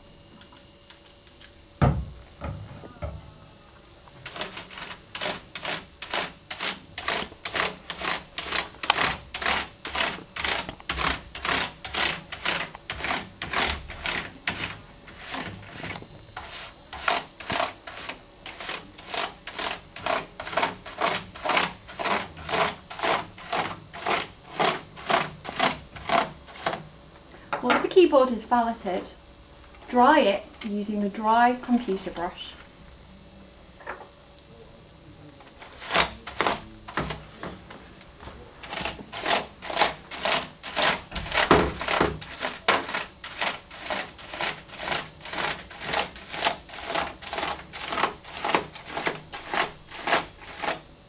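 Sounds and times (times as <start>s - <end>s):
brush scrubbing keyboard keys: 4.3s - 26.8s, 38.6s - 50.8s.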